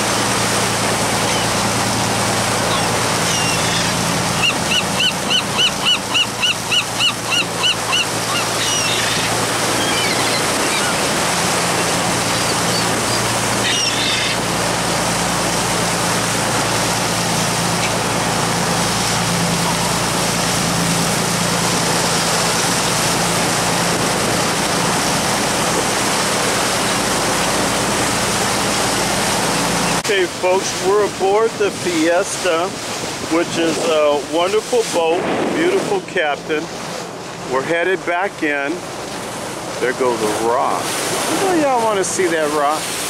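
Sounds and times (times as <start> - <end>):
boat engine drone: 0.0 - 43.0
rush of boat wake and wind: 0.0 - 43.0
gull calling: 1.1 - 1.8, 2.4 - 14.5.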